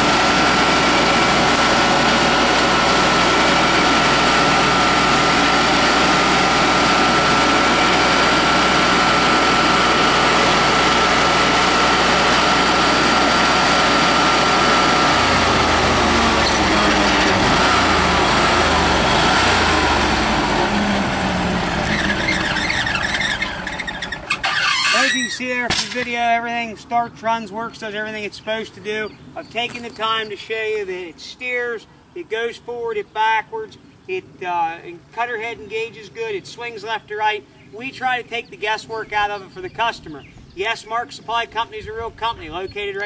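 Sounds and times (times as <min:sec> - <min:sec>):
stump grinder running with whine: 0:00.0 - 0:25.2.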